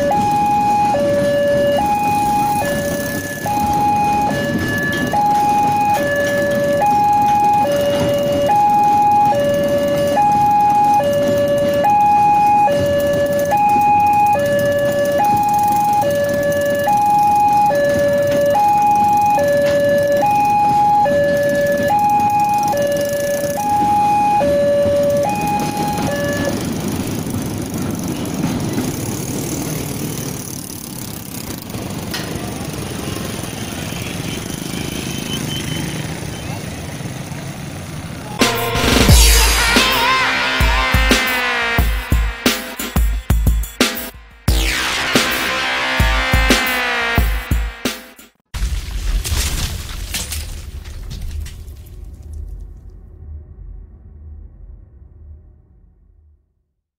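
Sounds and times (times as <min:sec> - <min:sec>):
level crossing two-tone alarm: 0:00.0 - 0:27.2, 0:38.3 - 0:48.2
train wagons rumbling past: 0:00.0 - 0:47.8.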